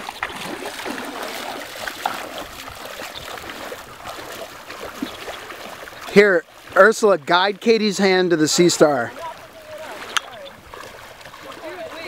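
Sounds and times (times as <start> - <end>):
seawater lapping and trickling: 0.0 - 12.0
faint clicks: 10.1 - 10.4.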